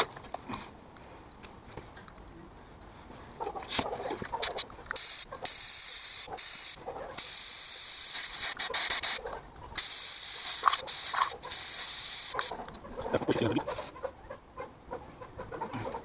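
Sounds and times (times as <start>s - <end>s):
spray gun air hissing: 5.0s - 9.2s, 9.8s - 12.5s.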